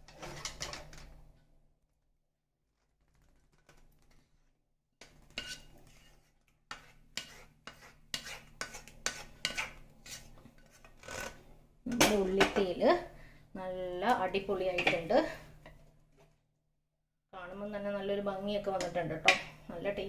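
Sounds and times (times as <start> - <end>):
plastic ladle scraping metal pan: 5.0 - 11.5.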